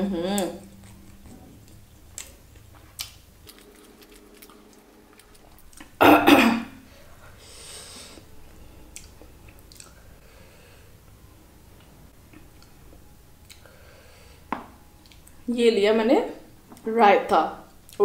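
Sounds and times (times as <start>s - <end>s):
woman coughing: 6.0s - 6.8s.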